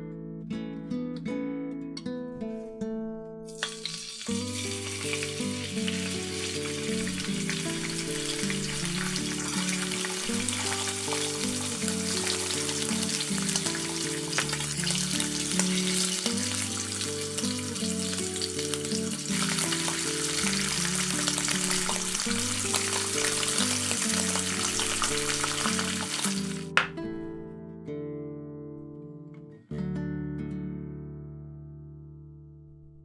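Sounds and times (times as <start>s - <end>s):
soft background music: 2.6s - 27.5s
beef sizzling in a pan: 3.5s - 26.9s.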